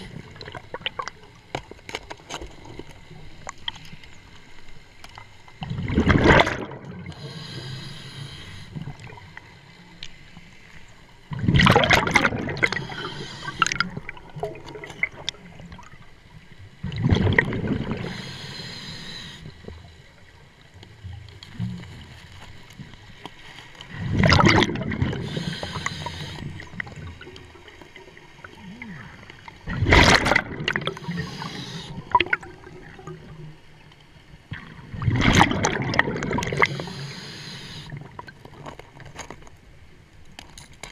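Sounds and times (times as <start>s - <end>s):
bubbling underwater exhalations: 5.6s - 7.3s, 11.3s - 15.3s, 16.8s - 18.2s, 24.0s - 27.4s, 28.4s - 33.2s, 34.9s - 37.0s
regulator hiss: 7.2s - 8.8s, 12.8s - 13.7s, 18.0s - 19.6s, 25.2s - 26.6s, 30.9s - 32.0s, 36.6s - 37.9s.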